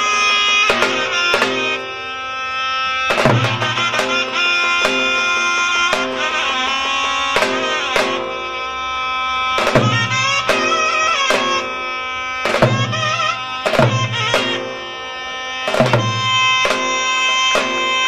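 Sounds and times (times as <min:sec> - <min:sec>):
reedy zurna melody: 0:00.0 - 0:18.0
deep drum strokes: 0:03.1 - 0:05.3, 0:09.6 - 0:14.8.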